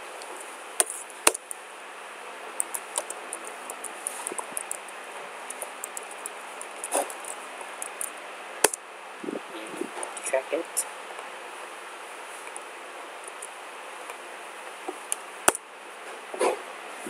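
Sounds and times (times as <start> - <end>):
steady background hiss: 0.0 - 17.0
computer keyboard keys clicking: 2.6 - 8.8.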